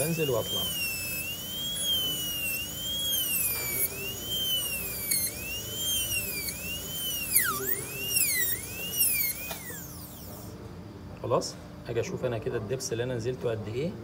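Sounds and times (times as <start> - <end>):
dental drill whining: 0.0 - 10.6.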